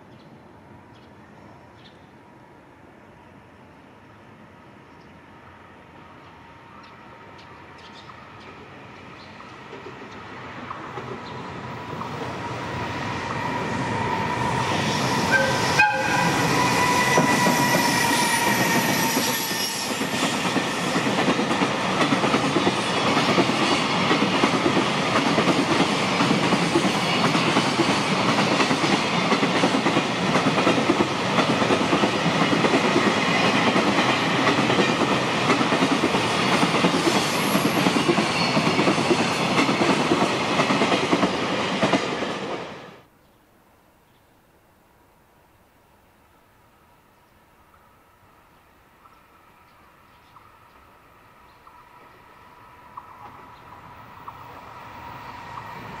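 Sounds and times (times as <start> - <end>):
locomotive horn: 15.2 - 18.7.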